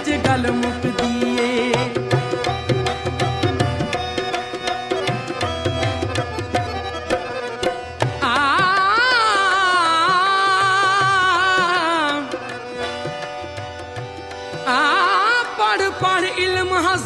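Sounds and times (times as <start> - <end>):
steady accompanying tones: 0.0 - 16.3
tabla: 0.0 - 17.0
woman singing ornamented phrases: 8.2 - 12.4.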